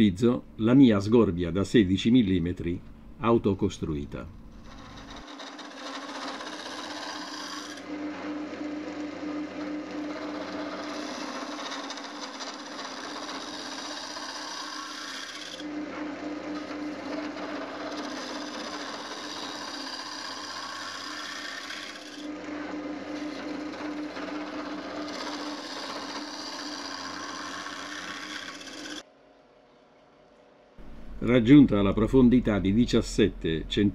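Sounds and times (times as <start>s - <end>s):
lathe humming: 4.3s - 29.0s, 30.8s - 32.4s
gouge scraping wood on lathe: 4.6s - 29.0s.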